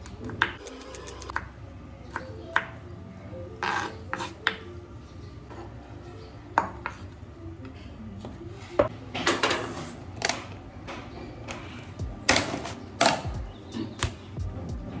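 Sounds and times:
dishes and utensils clinking: 8.7 - 13.9.

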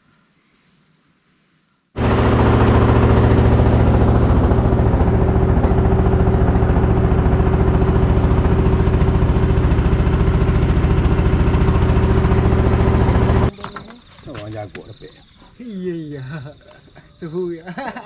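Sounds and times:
small boat engine running: 2.0 - 13.9.

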